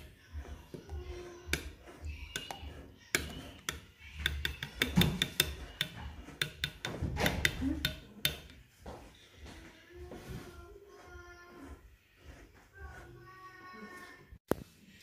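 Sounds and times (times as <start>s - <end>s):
utensil clicking against bowl: 1.5s - 8.6s.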